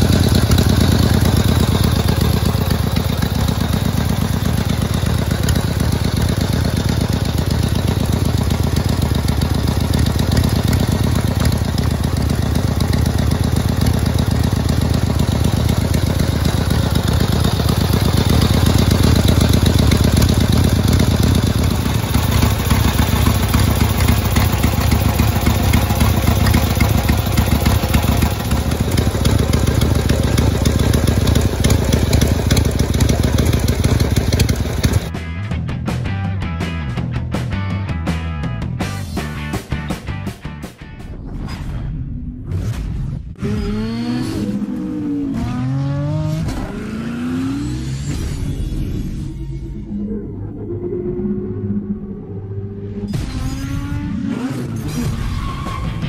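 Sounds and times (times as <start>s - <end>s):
motorcycle engine idling: 0.0s - 35.1s.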